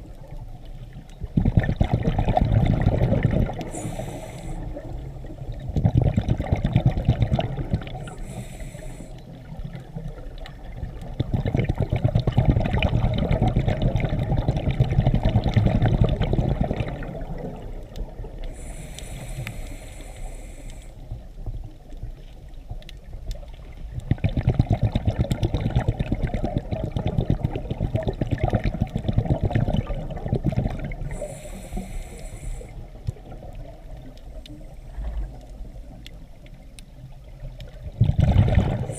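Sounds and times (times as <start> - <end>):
regulator inhalation hiss: 3.6 - 5.0, 8.0 - 9.4, 18.5 - 21.2, 31.1 - 33.0.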